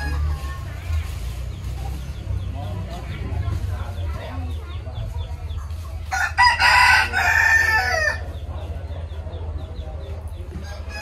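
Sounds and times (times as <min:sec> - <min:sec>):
rooster crowing: 0:06.1 - 0:08.2.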